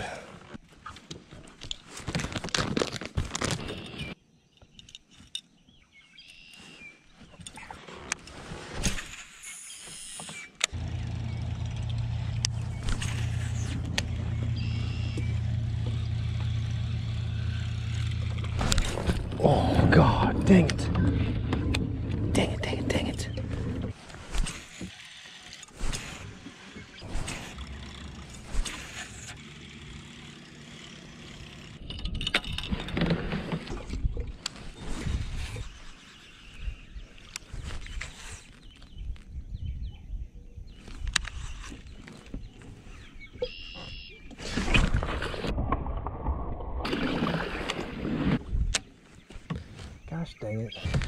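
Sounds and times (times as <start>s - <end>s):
low mechanical hum: 10.3s - 34.3s
water sounds: 44.3s - 48.5s.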